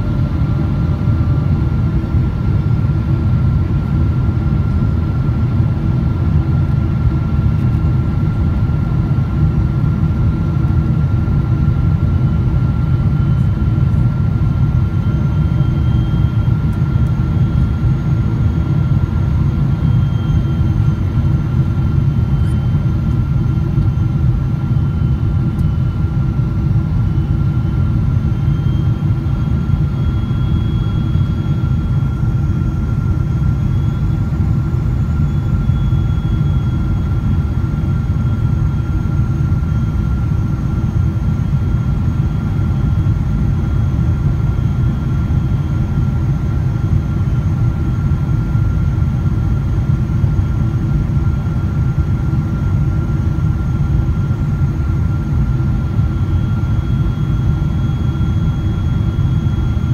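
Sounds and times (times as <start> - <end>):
aircraft cabin rumble: 0.0 - 59.9
thin whine: 14.7 - 46.5, 51.2 - 59.9.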